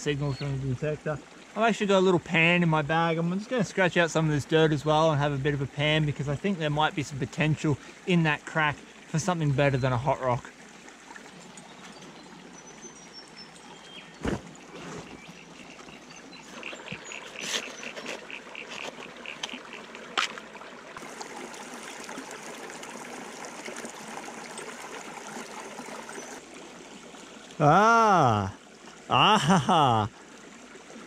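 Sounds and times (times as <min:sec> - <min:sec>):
creek running over rocks: 0:00.0 - 0:31.0
hand tool scraping plastic pan: 0:16.5 - 0:19.0.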